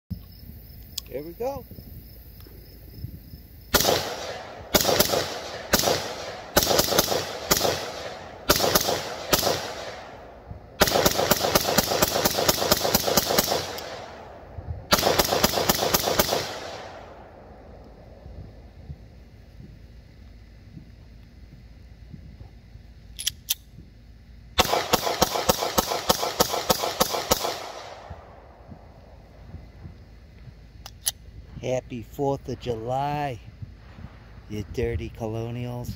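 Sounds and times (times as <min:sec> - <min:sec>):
rifle firing rapid shots: 0:03.7 - 0:17.2, 0:24.6 - 0:28.2
gunshot echo: 0:03.7 - 0:17.8, 0:24.6 - 0:28.9.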